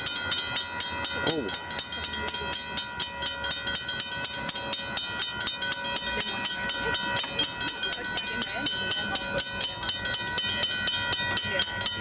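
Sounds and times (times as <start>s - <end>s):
crossing bell ringing rapidly: 0.0s - 12.0s.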